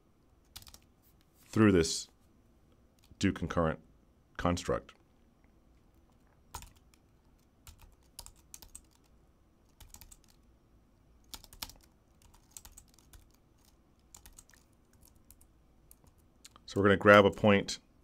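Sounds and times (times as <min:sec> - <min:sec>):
faint keyboard typing: 0:00.4 - 0:01.7, 0:02.9 - 0:03.2, 0:05.8 - 0:10.5, 0:11.2 - 0:17.4.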